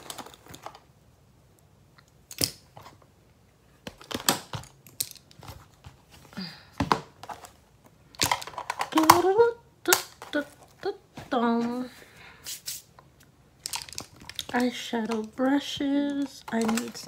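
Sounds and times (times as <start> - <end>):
clicks of makeup items handled: 13.6 - 17.0.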